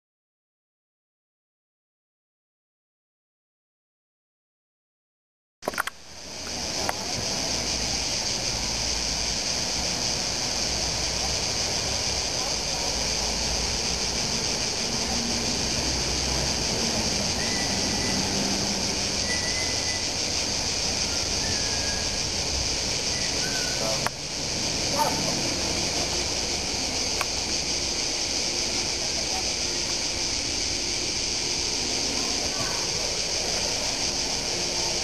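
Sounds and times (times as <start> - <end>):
sharp click: 5.6 - 7.0
insects singing: 5.7 - 35.0
bird chirps: 17.3 - 18.4, 19.2 - 20.3, 20.9 - 22.4, 23.1 - 24.0.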